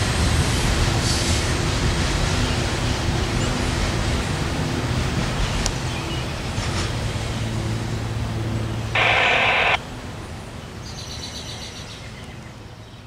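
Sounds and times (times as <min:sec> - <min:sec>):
freight train rumbling: 0:00.0 - 0:08.4.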